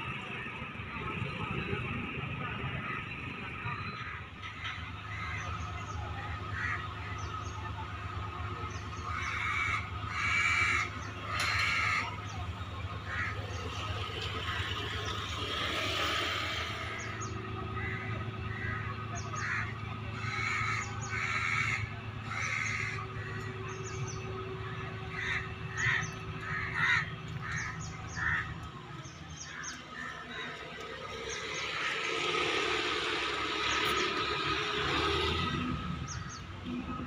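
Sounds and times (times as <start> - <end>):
low engine hum: 0.0 - 37.0
crows cawing: 6.5 - 7.2, 9.0 - 12.2, 13.0 - 13.5, 16.5 - 23.5, 24.6 - 28.6, 29.4 - 32.0
rushing noise: 13.8 - 18.4.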